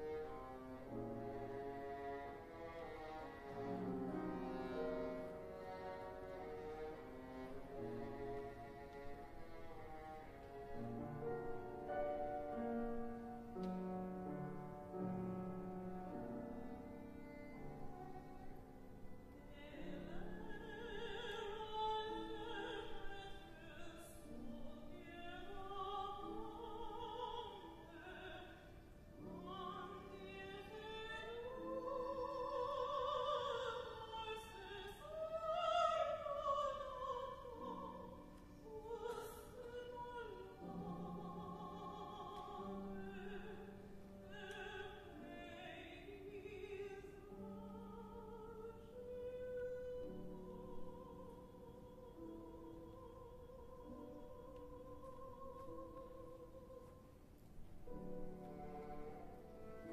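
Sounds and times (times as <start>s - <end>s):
piano: 0.0s - 59.9s
viola: 0.0s - 59.9s
woman singing operatically: 19.5s - 57.0s.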